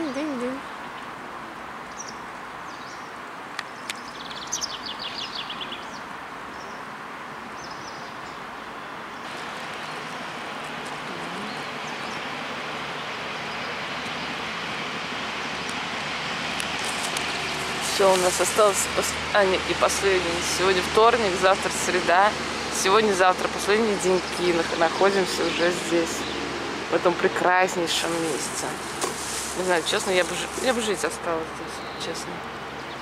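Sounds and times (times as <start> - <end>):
steady outdoor hiss: 0.0 - 33.0.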